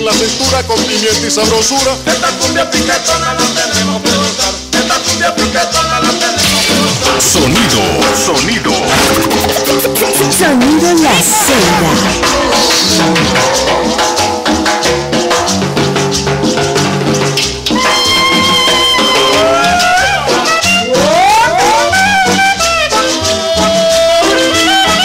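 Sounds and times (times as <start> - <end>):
instrumental dance music: 6.4 - 14.1.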